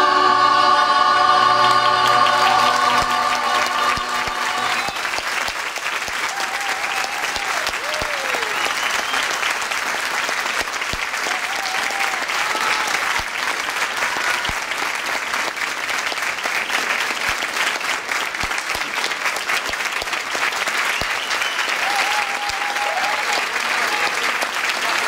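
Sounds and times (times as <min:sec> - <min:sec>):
crowd applauding: 0:01.2 - 0:25.0.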